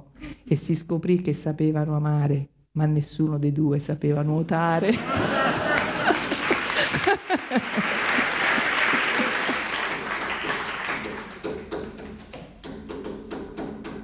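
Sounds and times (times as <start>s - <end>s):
audience applauding: 5.0s - 11.8s.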